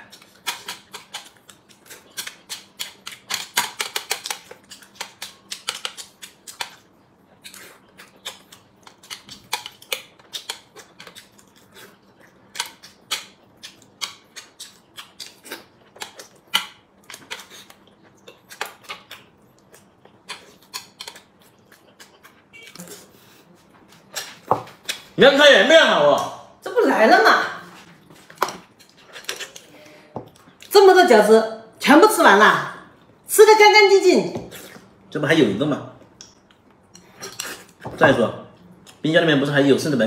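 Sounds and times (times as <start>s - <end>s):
man chewing with wet smacking: 0.0s - 25.2s, 27.8s - 30.7s, 36.0s - 37.9s.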